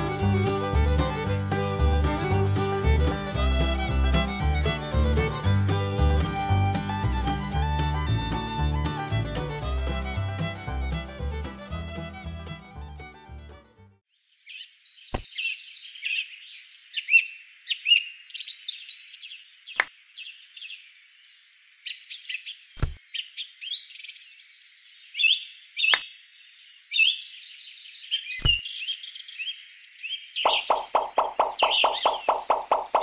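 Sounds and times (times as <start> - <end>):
small birds chirping and trilling: 14.1 - 33.0
sharp knocks: 30.5 - 33.0.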